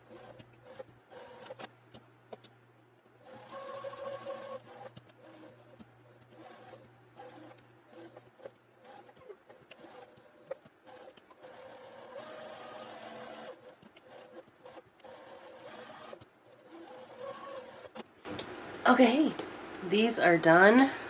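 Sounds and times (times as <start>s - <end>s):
electric sewing machine stitching: 0.0s - 1.8s, 3.2s - 18.1s.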